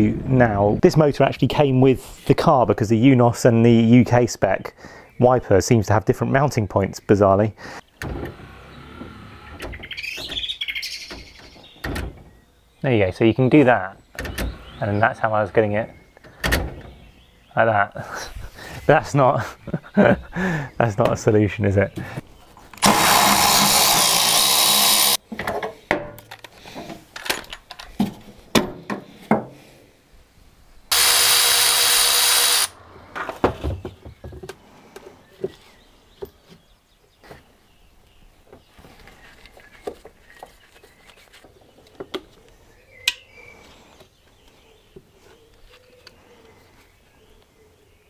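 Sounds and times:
power drill running: 0:22.8 - 0:25.2, 0:30.9 - 0:32.8
clicks and knocks of tools: 0:25.4 - 0:28.2.

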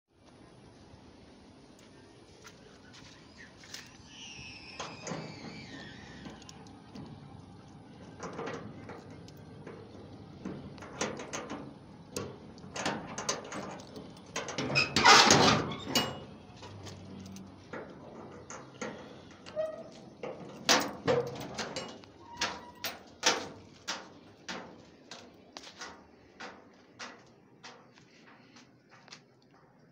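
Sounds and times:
padlock and bolt metal clanks: 0:06.3 - 0:28.4.

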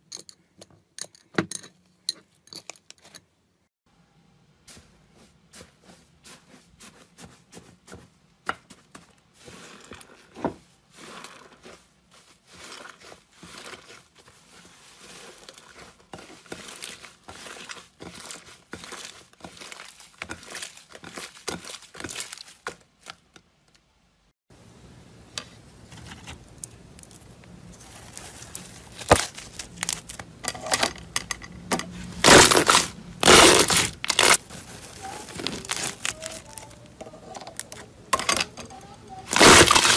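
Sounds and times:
crunchy slime crackling: 0:32.2 - 0:36.9, 0:39.2 - 0:39.9.

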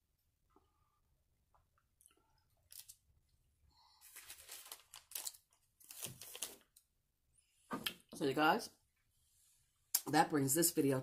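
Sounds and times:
food packaging crinkling: 0:02.6 - 0:03.0, 0:04.0 - 0:06.8.

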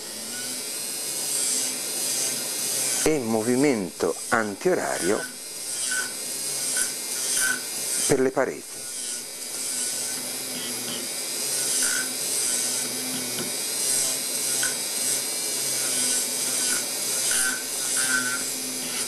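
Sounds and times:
dental milling handpiece whirring: 0:00.0 - 0:19.0.

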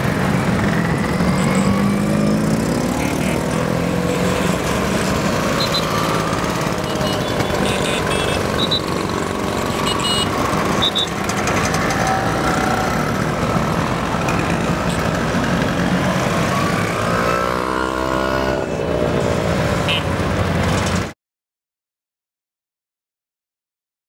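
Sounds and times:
scooter passing close: 0:00.0 - 0:21.1
scooter engines passing: 0:00.0 - 0:21.2.

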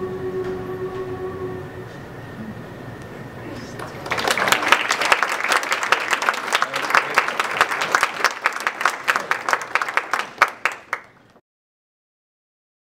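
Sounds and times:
audience applauding: 0:03.7 - 0:11.4.

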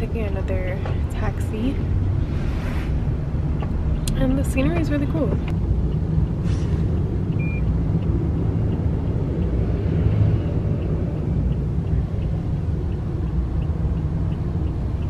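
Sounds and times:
car road rumble: 0:00.0 - 0:15.0
faint regular ticking: 0:03.5 - 0:15.0.

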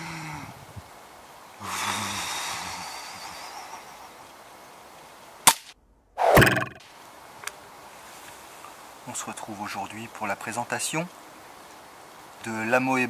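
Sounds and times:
man breathing heavily: 0:01.6 - 0:03.9.

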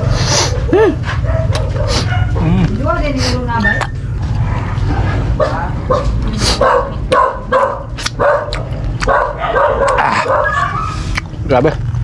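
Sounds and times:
dog barking: 0:00.4 - 0:02.5, 0:05.0 - 0:11.0.

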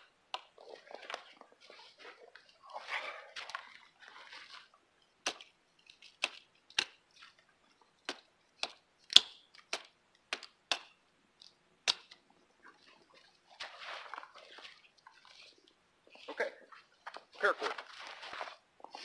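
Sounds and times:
knife chopping twigs: 0:06.2 - 0:07.0, 0:08.0 - 0:11.0.

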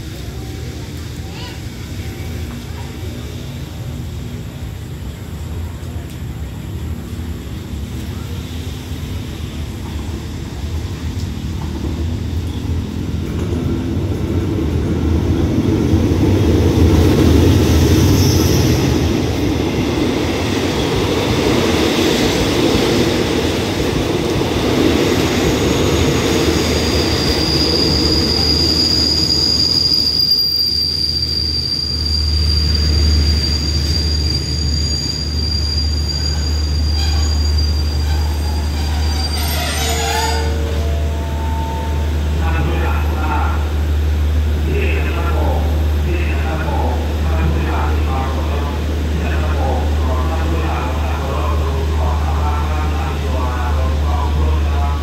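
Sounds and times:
train wheels rumbling on rail: 0:00.0 - 0:55.0
train brakes squealing: 0:17.6 - 0:19.3, 0:25.3 - 0:42.7.

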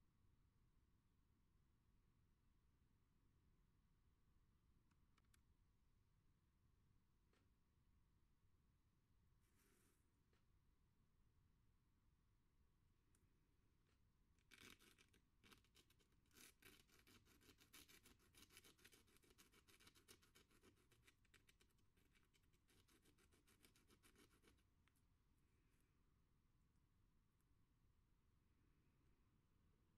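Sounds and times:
nail scratching sandpaper: 0:14.5 - 0:24.6.

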